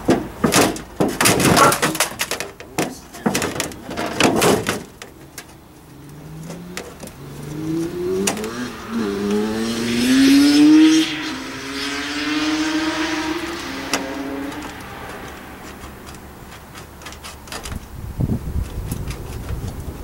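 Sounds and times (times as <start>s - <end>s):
sharp knocks: 0.0s - 5.2s
vehicle engine accelerating: 5.9s - 17.1s.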